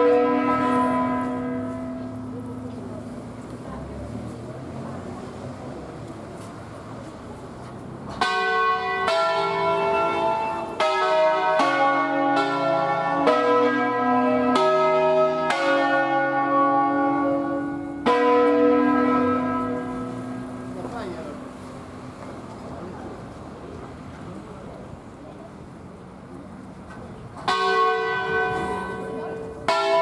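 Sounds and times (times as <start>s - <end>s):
church bells ringing: 0.0s - 3.0s, 8.1s - 22.0s, 27.4s - 30.0s.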